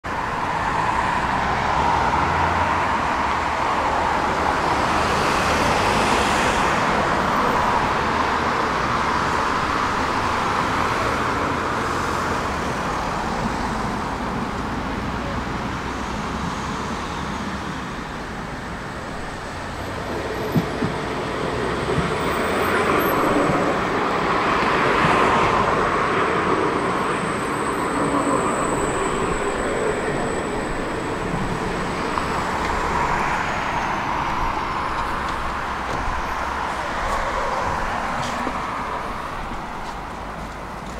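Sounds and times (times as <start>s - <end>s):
city street traffic: 0.0s - 40.9s
tram coming in: 17.3s - 40.9s.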